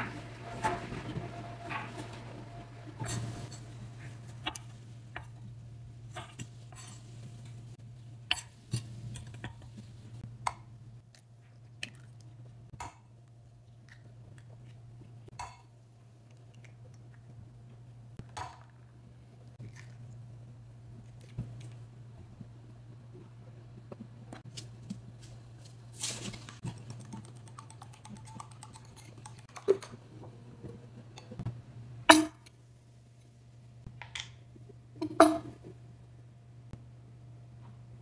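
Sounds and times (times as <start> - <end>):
low steady hum: 0.0 - 38.0
eggs cracking on a ceramic bowl: 26.6 - 30.0.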